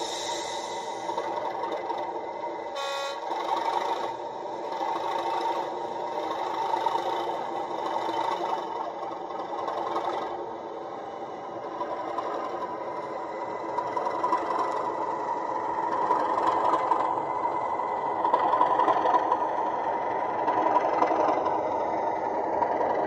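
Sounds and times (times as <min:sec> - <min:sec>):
diesel engine running: 0:00.0 - 0:23.0
locomotive horn blast: 0:02.8 - 0:03.4.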